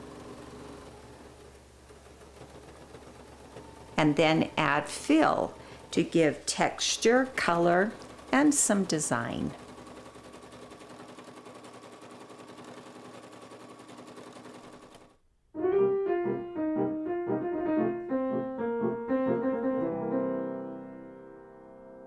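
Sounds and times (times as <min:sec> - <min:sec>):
sewing machine stitching: 0:00.0 - 0:15.2
short piano tune: 0:15.6 - 0:22.0.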